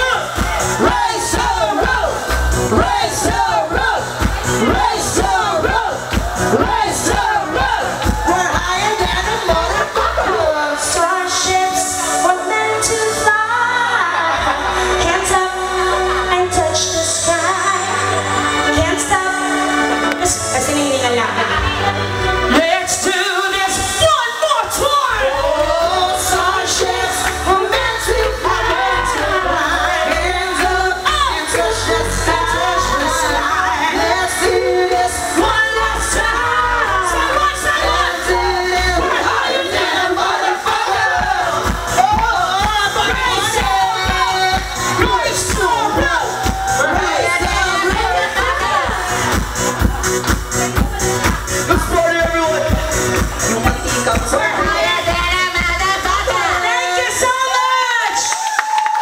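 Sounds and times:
woman singing into microphone: 0:00.0 - 0:49.6
backing music with bass: 0:00.0 - 0:59.0.

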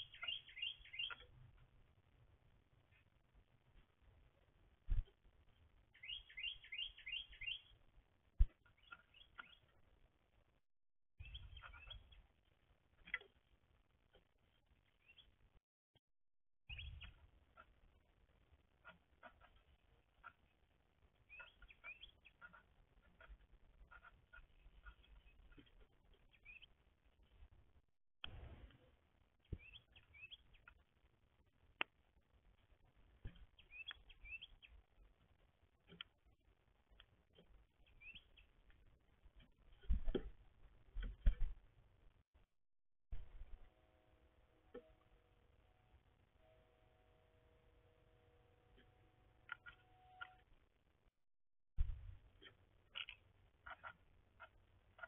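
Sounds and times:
bird chirps and calls: 0:00.0 - 0:01.3, 0:06.0 - 0:07.7, 0:11.2 - 0:12.3, 0:16.7 - 0:17.7, 0:21.3 - 0:26.7, 0:33.5 - 0:34.8
songbird singing: 0:00.0 - 0:01.6, 0:04.9 - 0:10.0, 0:11.2 - 0:13.5, 0:14.1 - 0:15.4, 0:16.7 - 0:27.5, 0:29.3 - 0:31.0, 0:33.2 - 0:34.9, 0:36.8 - 0:40.3, 0:48.7 - 0:50.6.

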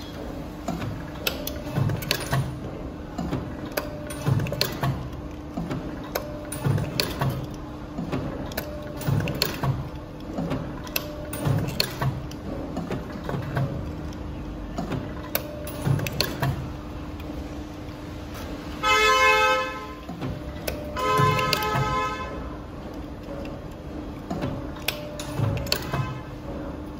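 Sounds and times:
stamping press thud and click: 0:00.6 - 0:16.8, 0:20.0 - 0:22.1, 0:24.2 - 0:26.6.

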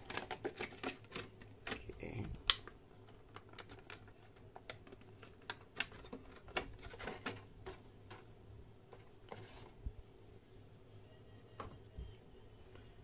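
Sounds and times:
plastic packaging crackling and clicking: 0:00.0 - 0:09.8.

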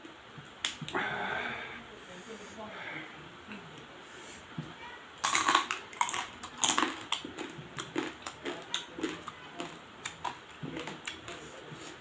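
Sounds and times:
crab shells crunching: 0:05.2 - 0:11.6.

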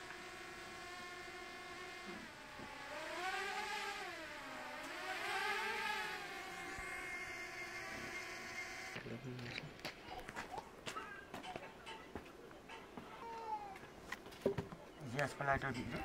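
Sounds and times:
engine droning: 0:00.0 - 0:10.3.

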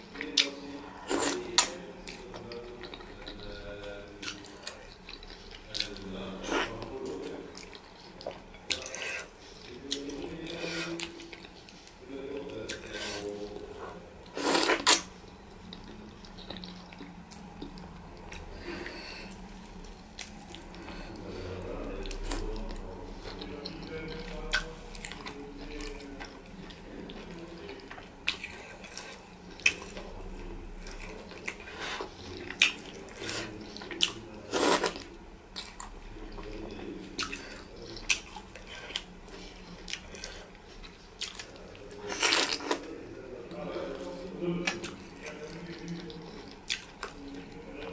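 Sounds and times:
wet eating sounds: 0:00.0 - 0:47.9
mouth smacks and chewing: 0:00.1 - 0:42.9, 0:44.0 - 0:47.9.

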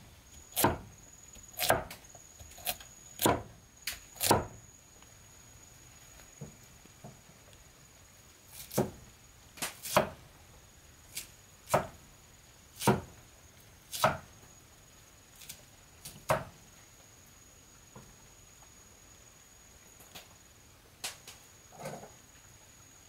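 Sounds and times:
knife chopping on cutting board: 0:00.6 - 0:00.8, 0:01.6 - 0:01.9, 0:02.6 - 0:03.5, 0:04.2 - 0:04.5.

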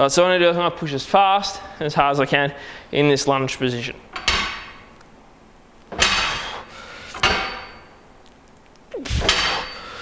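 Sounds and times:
steel bar clanking against frame: 0:05.9 - 0:06.5, 0:07.1 - 0:07.8, 0:09.2 - 0:09.9.

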